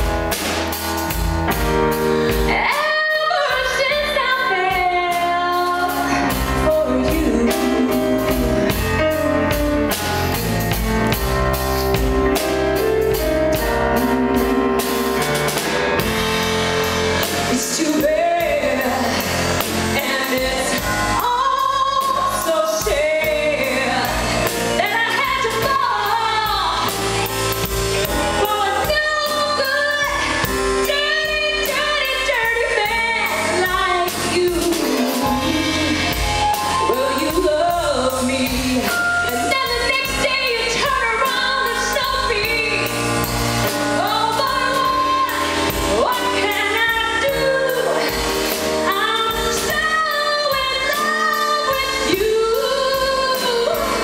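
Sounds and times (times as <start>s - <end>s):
band with drums and guitar: 0.0s - 54.0s
woman singing into microphone: 2.3s - 9.1s, 17.3s - 27.4s, 28.3s - 43.0s, 43.7s - 54.0s.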